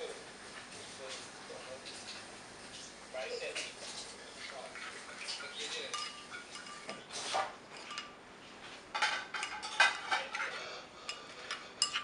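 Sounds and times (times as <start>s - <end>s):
metal spoon clinking in ceramic bowl: 5.3s - 7.0s, 7.7s - 8.2s, 9.0s - 10.5s, 11.1s - 12.0s.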